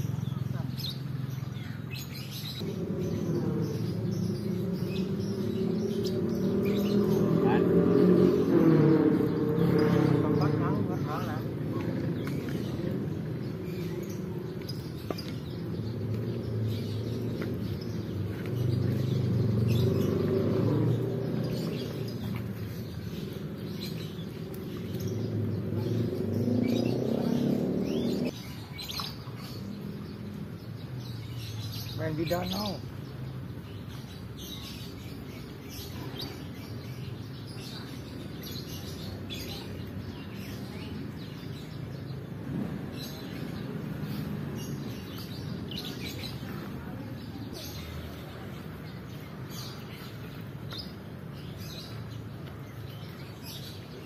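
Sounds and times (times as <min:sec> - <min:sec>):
vehicle engine hum: 0:00.0 - 0:28.4
small birds chirping: 0:00.0 - 0:54.0.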